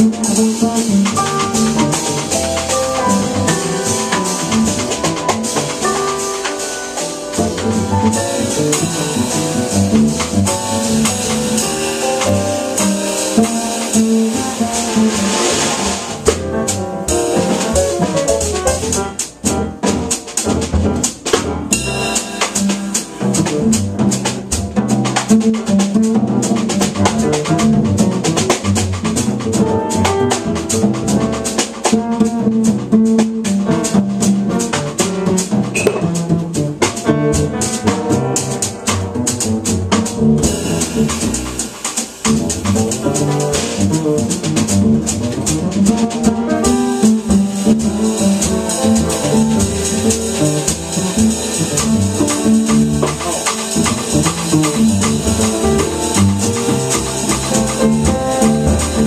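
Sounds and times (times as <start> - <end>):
bass: 0.0 - 59.0
drum kit: 0.0 - 59.0
grand piano: 0.0 - 59.0
cymbal wash: 21.8 - 23.2.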